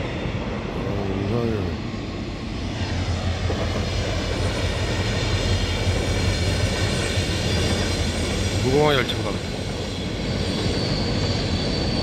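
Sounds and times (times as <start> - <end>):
rail noise: 0.0 - 12.0
train locomotive drone: 0.0 - 12.0.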